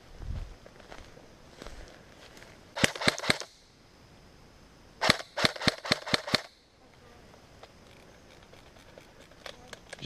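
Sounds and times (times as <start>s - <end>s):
airsoft rifle rapid shots: 2.8s - 3.5s, 5.0s - 6.5s.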